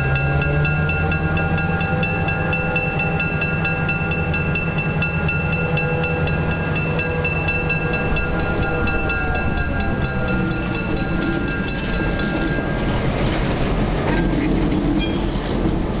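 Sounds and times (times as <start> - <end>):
fast even ringing: 0.0 - 13.6
diesel locomotive engine: 0.0 - 16.0.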